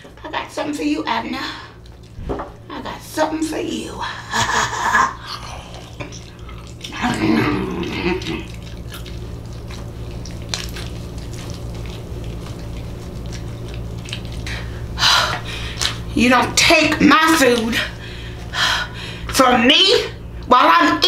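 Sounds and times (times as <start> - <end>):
steady low hum: 0.0 - 21.0
wet chewing and lip smacking: 1.8 - 2.2, 5.1 - 16.1.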